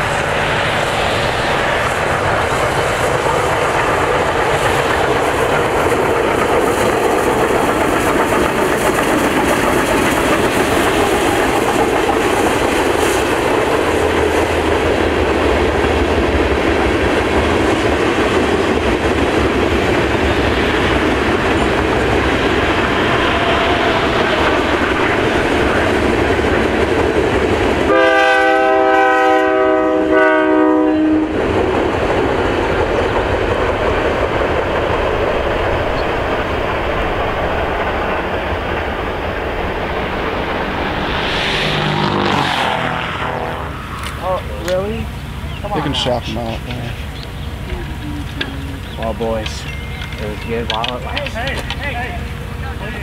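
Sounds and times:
freight train wheels clattering: 0:00.0 - 0:28.6, 0:46.3 - 0:53.0
chorded train horn: 0:27.8 - 0:31.4, 0:41.8 - 0:43.9.

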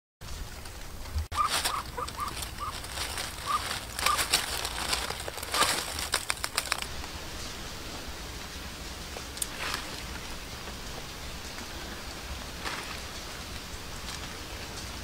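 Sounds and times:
dry leaves crackling and rustling: 0:00.3 - 0:15.0
duck calling: 0:01.3 - 0:04.3.

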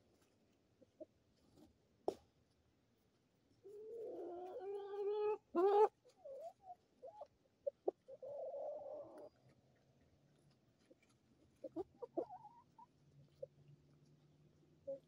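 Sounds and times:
chicken clucks: 0:03.6 - 0:15.0
chicken squawk: 0:03.7 - 0:09.3, 0:11.7 - 0:12.9.

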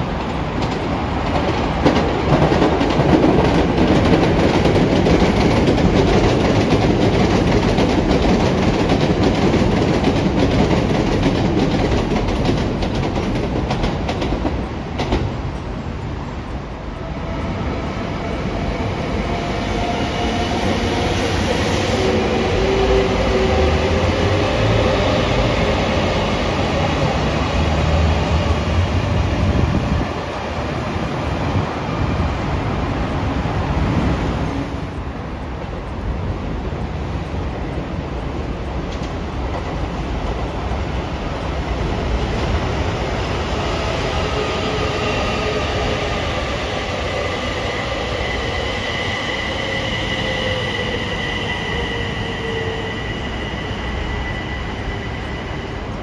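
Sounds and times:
train wheels clattering on track: 0:00.0 - 0:56.0
steady pitched tones ringing: 0:34.4 - 0:56.0.

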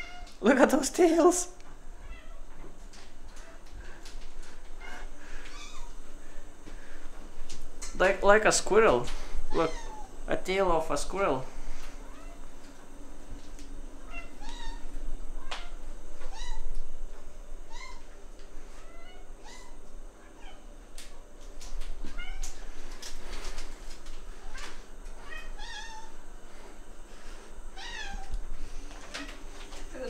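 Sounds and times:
cats meowing: 0:00.0 - 0:00.4, 0:02.0 - 0:02.7, 0:04.6 - 0:06.0, 0:09.5 - 0:10.2, 0:14.0 - 0:16.8, 0:17.6 - 0:20.8, 0:22.0 - 0:22.8, 0:24.4 - 0:26.2, 0:27.7 - 0:28.5.

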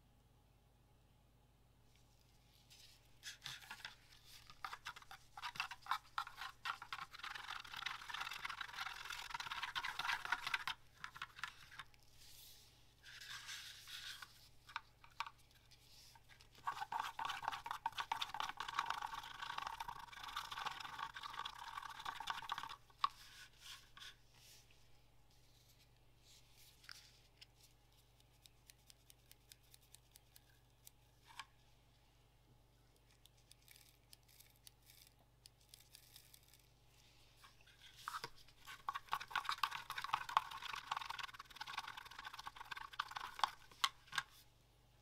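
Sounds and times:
stick stirring in plastic cup: 0:02.9 - 0:24.2, 0:37.4 - 0:44.4.

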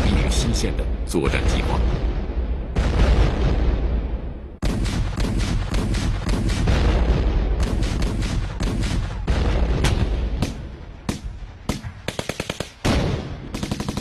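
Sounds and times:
low rumble of explosions: 0:00.0 - 0:14.0
rapid gunshots: 0:04.6 - 0:14.0.

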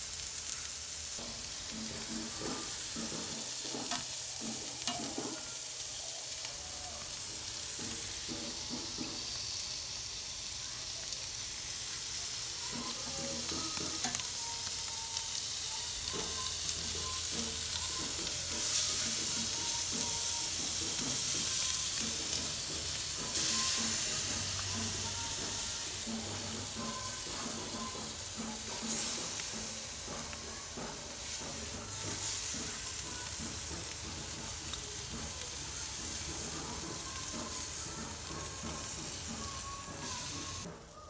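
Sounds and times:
steaks sizzling on a grill: 0:00.0 - 0:40.7
metal tongs clinking on grate: 0:01.2 - 0:05.7, 0:12.7 - 0:15.2.

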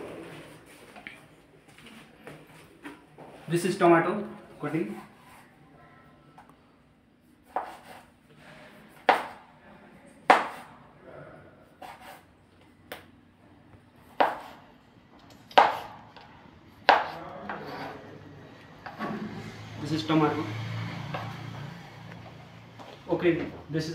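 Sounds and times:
knife chopping on wooden board: 0:07.5 - 0:08.0, 0:09.0 - 0:09.4, 0:10.3 - 0:10.7, 0:14.2 - 0:14.6, 0:15.5 - 0:16.0, 0:16.8 - 0:17.6.

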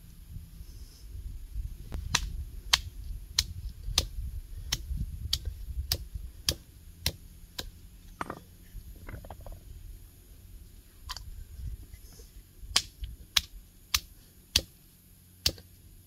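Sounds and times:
hammer striking walnuts on stone: 0:04.7 - 0:08.5, 0:12.8 - 0:14.8, 0:15.4 - 0:15.7.

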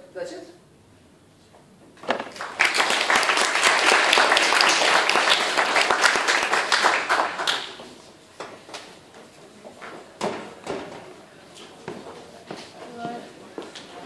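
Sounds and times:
audience applauding: 0:02.2 - 0:08.0.

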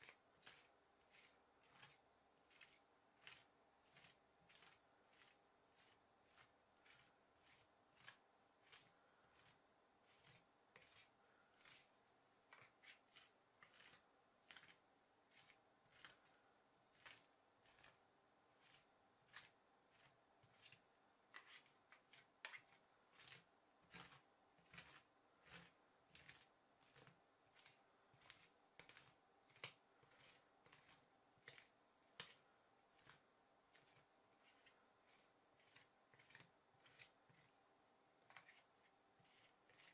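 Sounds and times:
spatula scraping on frozen metal plate: 0:00.0 - 0:11.9, 0:12.5 - 0:18.0, 0:18.6 - 0:37.5, 0:38.3 - 0:39.9.

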